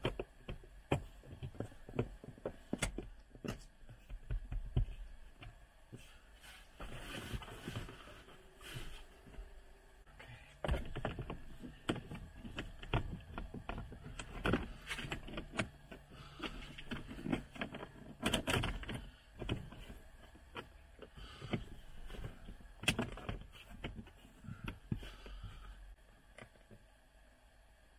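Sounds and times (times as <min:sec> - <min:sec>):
plastic trim panels clicking and rattling: 0:10.6 - 0:24.8.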